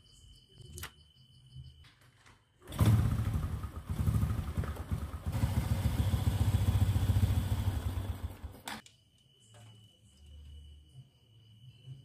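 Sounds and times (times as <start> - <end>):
motorcycle engine idling: 2.7 - 8.7.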